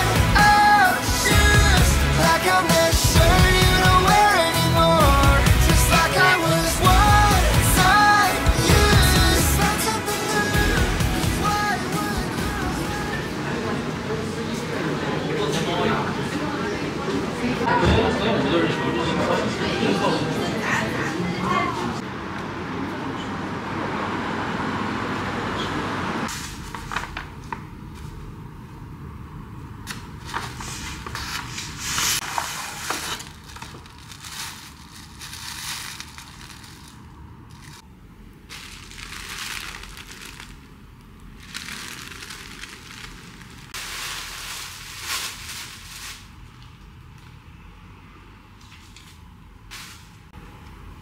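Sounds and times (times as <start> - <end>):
rustling and crinkling material: 30.2 - 37.9, 38.5 - 46.7.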